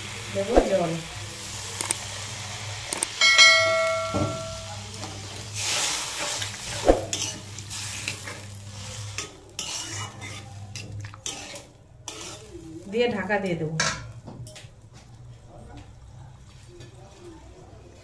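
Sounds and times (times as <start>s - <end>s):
pan sizzling: 0.0s - 14.3s
sharp metal clang: 3.2s - 4.8s
metal spatula scraping a pan: 4.5s - 12.7s.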